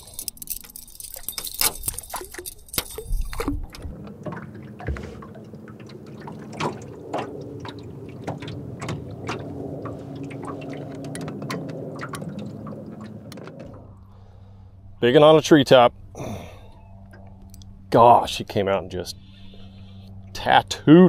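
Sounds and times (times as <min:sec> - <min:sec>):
water splashing and dripping: 0:00.8 - 0:13.9.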